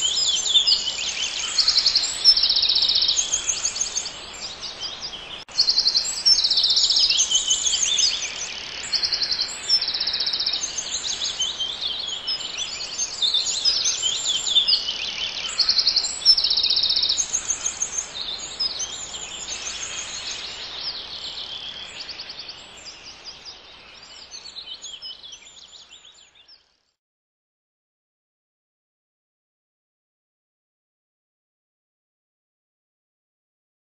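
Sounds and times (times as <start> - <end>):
background hiss: 0.0 - 26.4
songbirds singing: 0.0 - 26.9.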